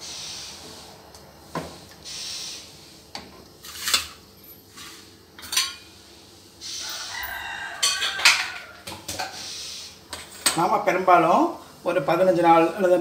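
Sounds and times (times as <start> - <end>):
wooden spatula scraping metal pan: 3.6 - 4.2.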